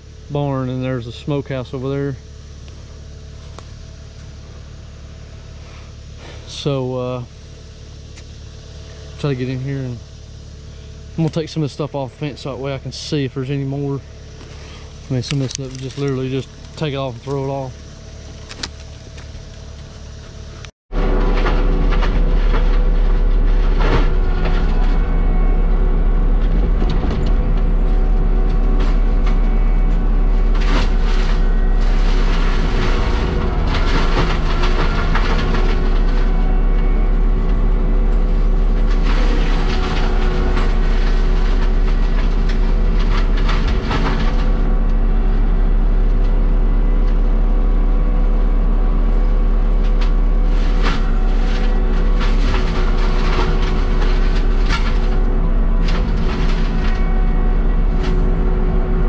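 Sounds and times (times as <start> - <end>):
diesel engine running under load: 0.0 - 59.0
metal clanks and scrapes: 14.4 - 20.1, 26.4 - 37.5, 49.9 - 58.4.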